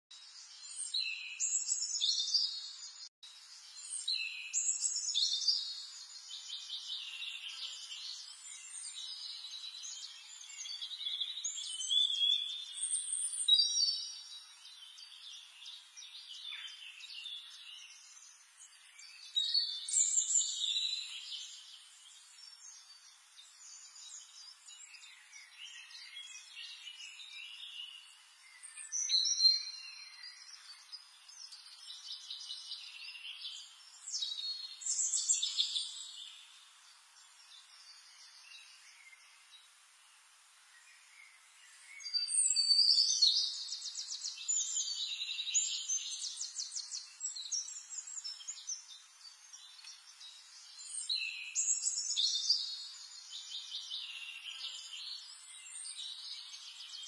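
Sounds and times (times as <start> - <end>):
faint background hiss: 0.2 - 57.0
birds chirping and singing: 3.7 - 39.8, 40.7 - 57.0.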